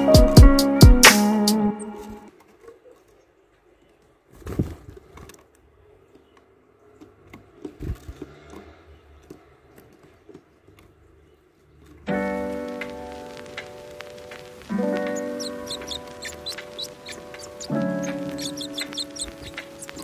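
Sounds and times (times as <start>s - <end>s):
beaks pecking at peanut net: 13.4s - 20.0s
claws scratching on wood: 14.6s - 20.0s.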